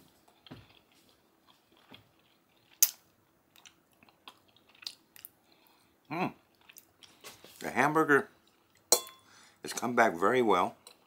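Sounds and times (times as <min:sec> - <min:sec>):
person chewing: 0:00.1 - 0:07.5, 0:08.4 - 0:08.9.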